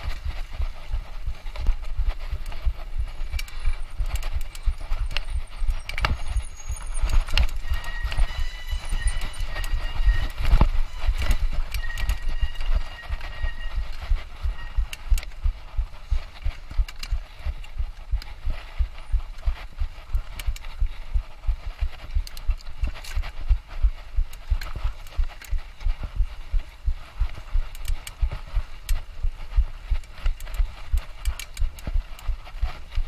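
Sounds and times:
sharp rattling clicks: 0.0 - 20.8, 30.0 - 33.0
thin high whine: 5.2 - 15.0.

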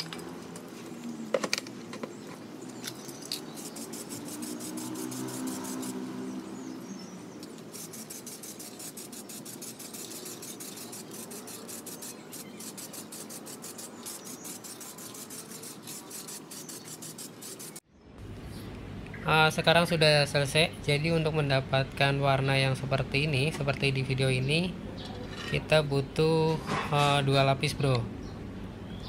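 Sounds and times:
spray can ball rattling: 2.8 - 6.0, 7.5 - 17.8.

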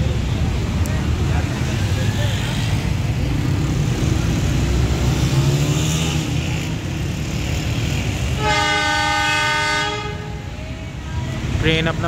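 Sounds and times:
road traffic: 0.0 - 12.0
locomotive air horn: 8.3 - 10.6.

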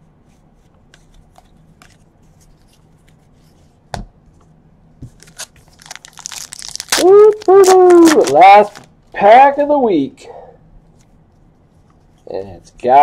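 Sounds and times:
cards sliding and ticking: 0.6 - 3.5.

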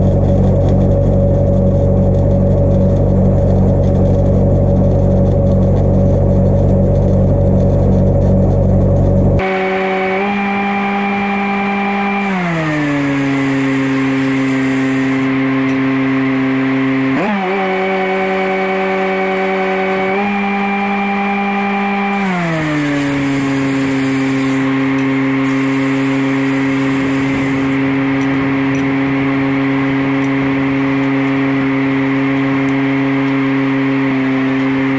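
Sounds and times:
welder engine running: 0.0 - 34.9
welding arc hiss and crackle: 13.3 - 15.3, 22.2 - 27.8.

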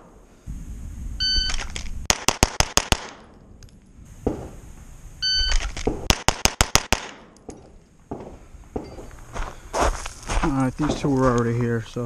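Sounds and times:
shot timer beep: 1.2 - 1.6, 5.2 - 5.6
pistol shots: 1.5 - 3.4, 5.4 - 9.0.

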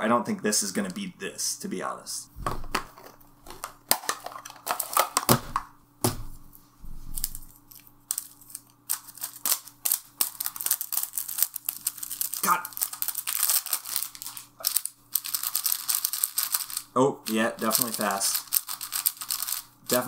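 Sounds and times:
plastic film peeling and crinkling: 3.0 - 5.5, 7.2 - 20.0.

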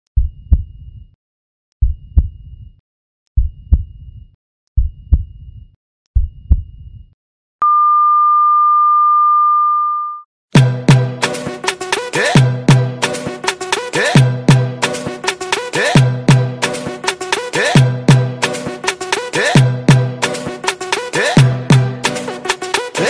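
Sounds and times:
heartbeat double thumps: 0.2 - 1.2, 1.8 - 2.8, 3.4 - 7.2
long flatline beep: 7.6 - 10.3.

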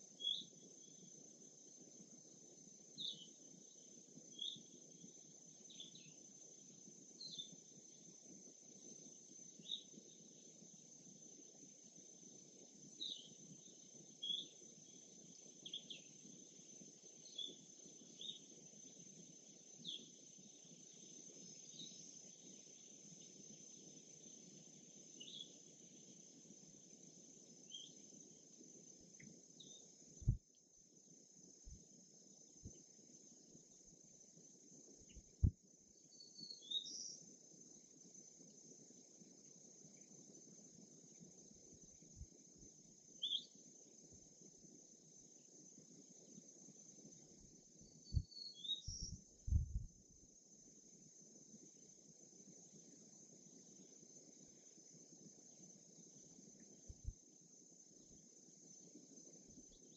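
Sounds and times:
high insect trill: 0.0 - 59.9
low background hiss: 0.0 - 59.9
short bird chirps: 48.0 - 49.8.

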